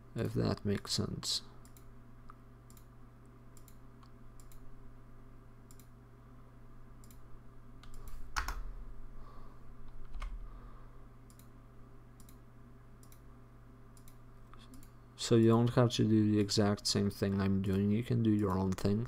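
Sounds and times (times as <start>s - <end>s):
low electrical hum: 0.0s - 19.0s
computer mouse clicking: 1.6s - 1.9s, 2.7s - 2.9s, 3.6s - 4.7s, 5.7s - 6.0s, 7.0s - 7.2s, 7.8s - 8.6s, 11.3s - 11.5s, 12.2s - 12.4s, 13.0s - 13.3s, 14.0s - 15.0s.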